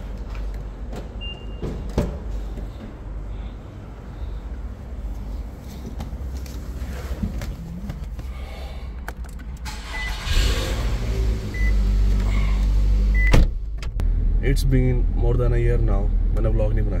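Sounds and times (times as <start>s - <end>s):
car engine starting and running: 8.9s - 17.0s
low rumble: 9.6s - 17.0s.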